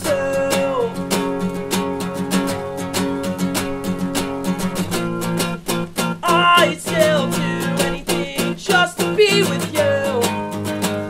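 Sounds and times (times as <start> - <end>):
man singing: 0.0 - 1.6, 6.2 - 11.0
acoustic guitar strumming: 0.0 - 11.0.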